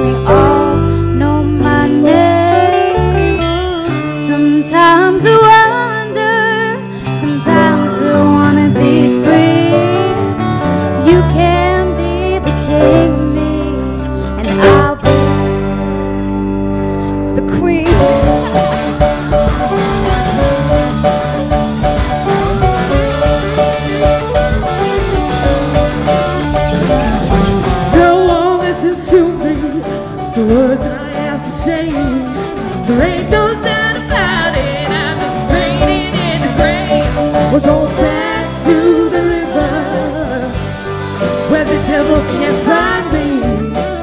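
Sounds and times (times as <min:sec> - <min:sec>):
woman singing: 0:00.0 - 0:15.6, 0:17.3 - 0:18.4, 0:27.9 - 0:40.7, 0:41.4 - 0:44.0
live band playing: 0:00.0 - 0:44.0.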